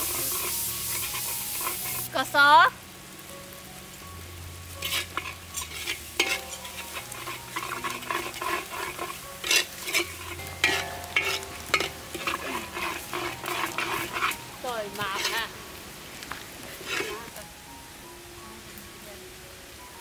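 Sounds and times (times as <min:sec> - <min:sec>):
metal ladle scraping wok: 0:00.0 - 0:02.1, 0:04.7 - 0:15.8, 0:16.7 - 0:17.4
sauce sizzling and bubbling: 0:00.0 - 0:18.4.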